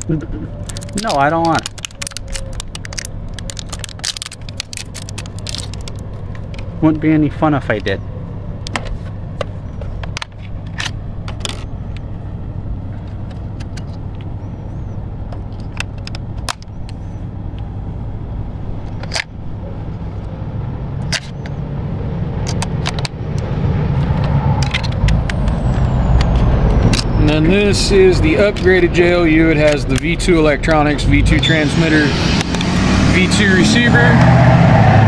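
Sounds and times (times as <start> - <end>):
low engine rumble of traffic: 0.0 - 35.0
truck approaching: 0.0 - 35.0
plastic parts clicking: 0.6 - 6.7, 15.3 - 17.0.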